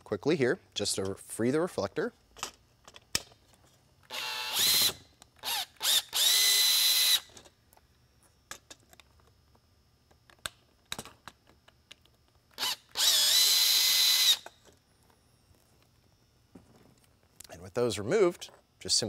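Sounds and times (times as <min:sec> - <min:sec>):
cordless drill motor running: 0:04.1 - 0:07.3, 0:12.6 - 0:14.5.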